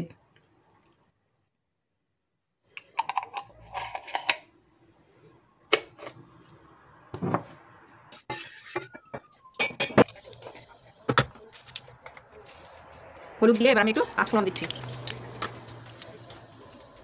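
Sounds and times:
frying pan hissing: 10.0 - 17.0.

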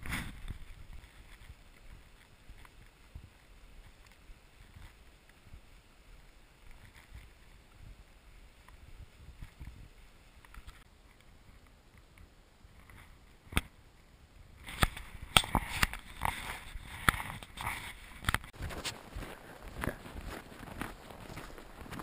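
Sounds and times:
footsteps crunching in snow: 14.6 - 22.0.

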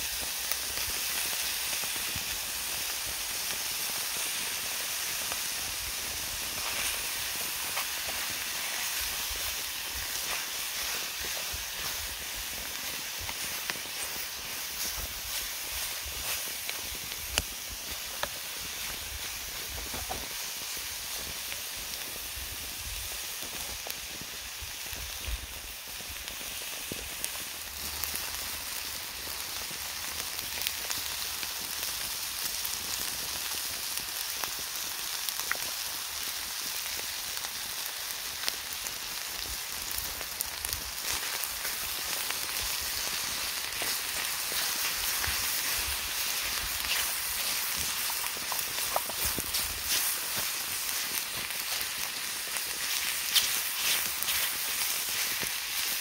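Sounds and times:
steady rain falling: 0.0 - 33.0, 33.8 - 56.0.

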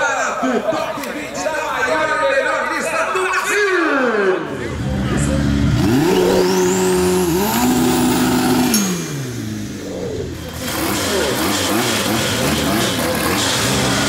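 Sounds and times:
drag car engine revving: 4.6 - 14.0.

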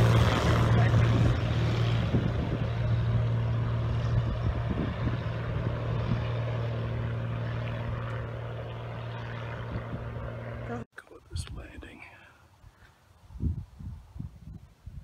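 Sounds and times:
light plane engine droning: 0.0 - 10.9.

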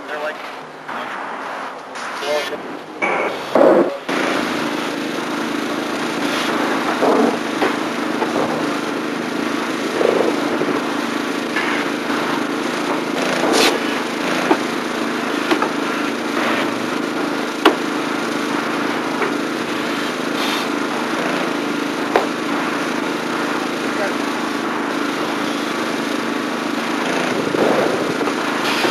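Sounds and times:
construction knocks: 3.0 - 28.9
small engine running: 4.0 - 28.9.

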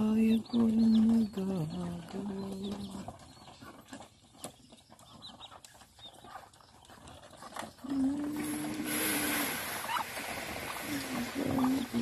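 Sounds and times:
birds pecking feed taps: 0.0 - 12.0
hiss: 8.4 - 12.0.

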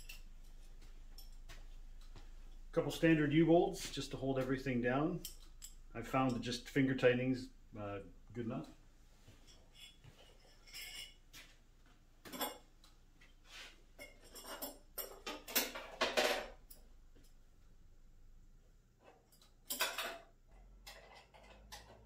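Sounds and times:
metal hardware clinking: 0.0 - 2.7, 5.0 - 6.5, 19.3 - 22.0.

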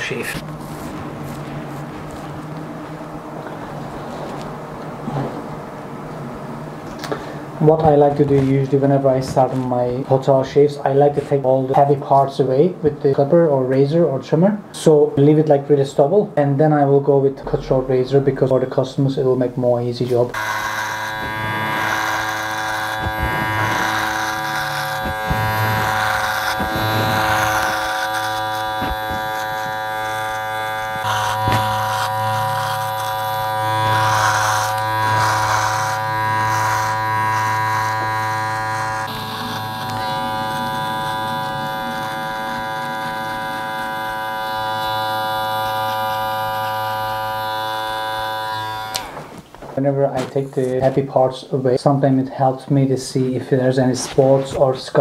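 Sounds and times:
electric hair clipper buzzing: 20.3 - 49.4.

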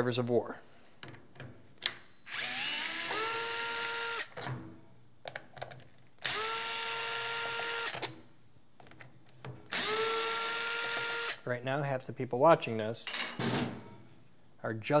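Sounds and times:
electric screwdriver motor whine: 2.3 - 4.3, 6.2 - 8.0, 9.7 - 11.4.

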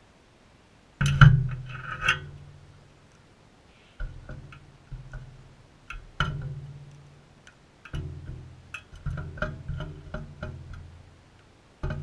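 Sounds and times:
beaks tapping on a feeding bowl: 4.0 - 11.0, 11.8 - 12.0.

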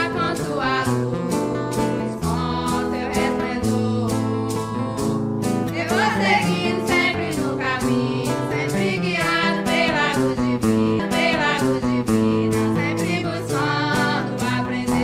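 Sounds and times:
person singing a hymn: 5.8 - 15.0
sustained instrumental chords: 9.1 - 15.0.

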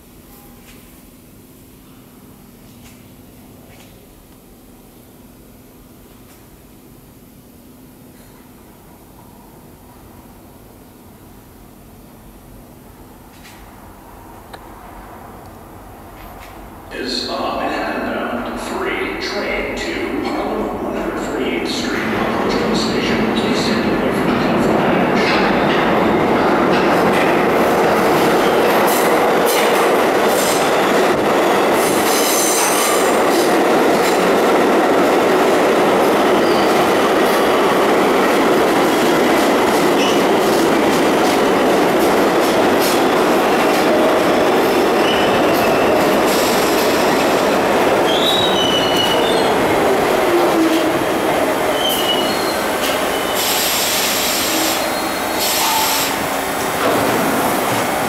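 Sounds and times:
subway train wheels rumbling: 0.0 - 58.0
wheel squeals: 48.1 - 49.5, 51.7 - 53.6.

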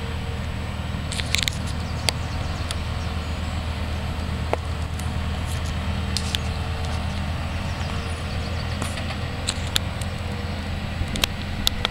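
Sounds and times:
diesel locomotive engine rumbling: 0.0 - 11.9.

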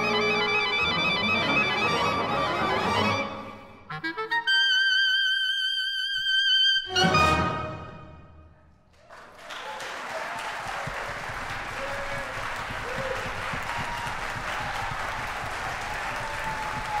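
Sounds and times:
audience applause: 8.9 - 17.0.

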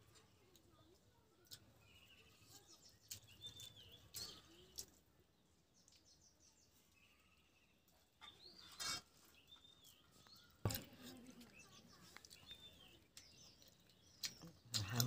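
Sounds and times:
faint bird chirps: 0.1 - 15.0.

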